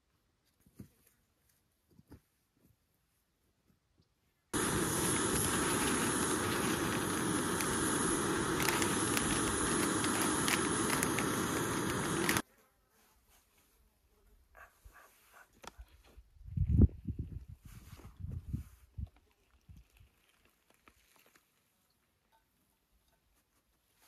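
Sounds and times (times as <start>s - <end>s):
stove burner hissing: 4.6s - 12.4s.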